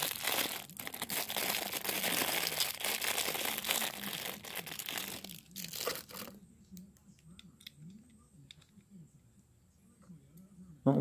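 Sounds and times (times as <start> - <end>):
plastic wrapping crinkling: 0.0 - 6.4.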